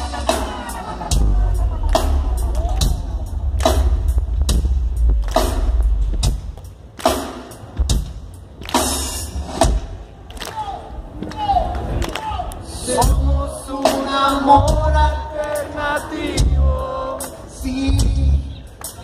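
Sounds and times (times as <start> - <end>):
live rock band: 0.0 - 10.1, 12.7 - 19.0
heavy bass: 0.0 - 10.2, 10.9 - 18.6
drum hits: 0.1 - 8.9.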